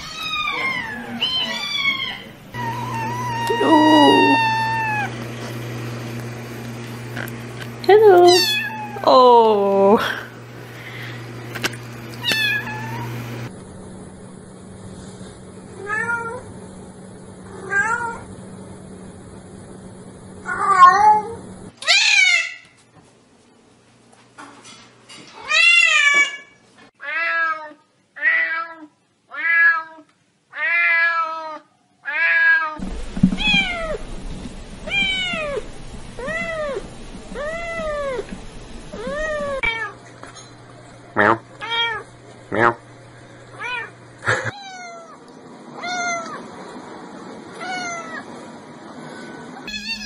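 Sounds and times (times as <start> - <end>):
cats meowing: 0.0 - 5.2, 8.2 - 9.1, 12.2 - 13.3, 34.9 - 35.6, 47.6 - 48.3, 49.2 - 50.0.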